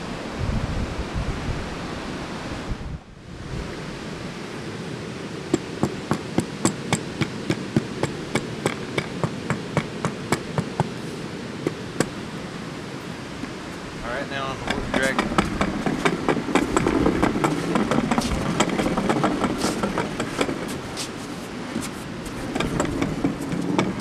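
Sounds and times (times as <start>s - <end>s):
steady rushing noise: 0.0s - 24.0s
light knocking against concrete: 5.5s - 11.0s.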